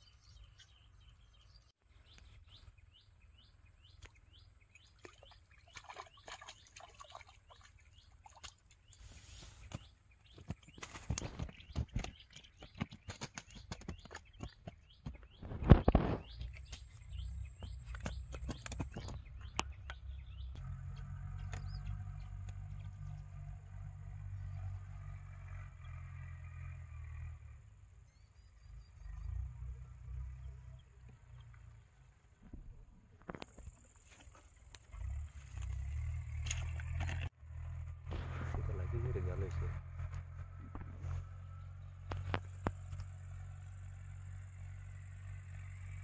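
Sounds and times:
small birds chirping: 0.0s - 26.3s.

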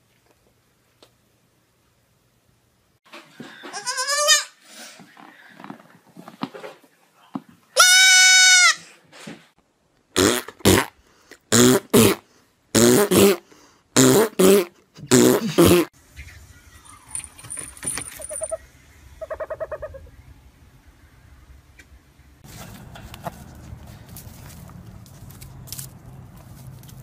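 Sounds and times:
goat kid bleating: 3.7s - 4.6s, 7.8s - 8.8s.

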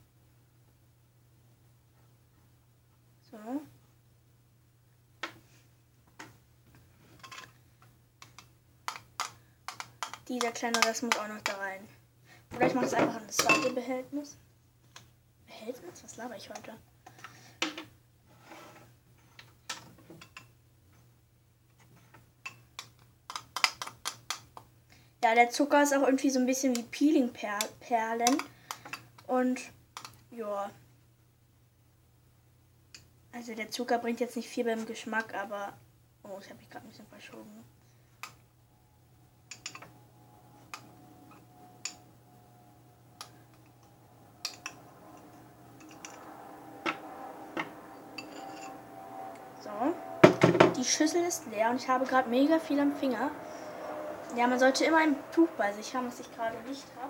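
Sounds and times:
faint steady hum: 0.0s - 57.0s
plastic pots clicking on wood: 8.2s - 11.2s, 22.8s - 24.6s.

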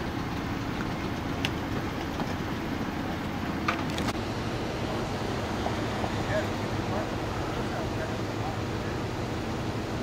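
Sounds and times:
vehicle engine running: 0.0s - 10.0s.

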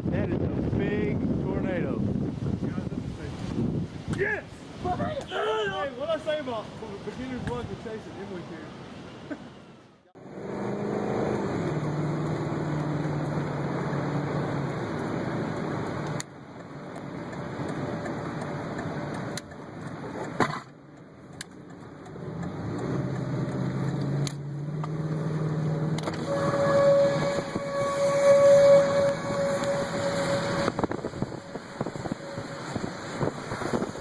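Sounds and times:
wind: 0.0s - 34.0s
rain: 10.2s - 34.0s
vehicle running: 10.2s - 34.0s
steady high tone: 26.2s - 34.0s.

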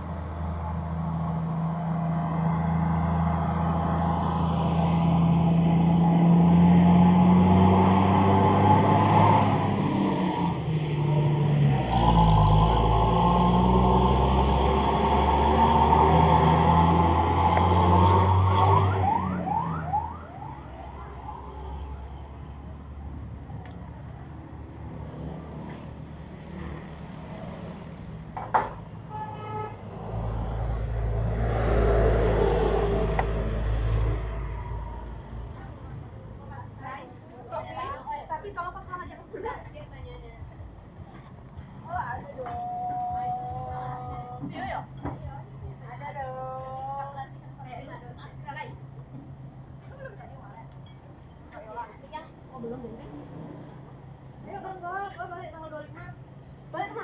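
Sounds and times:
vehicle passing rumble: 0.0s - 57.0s
car horn toot: 29.1s - 29.8s.

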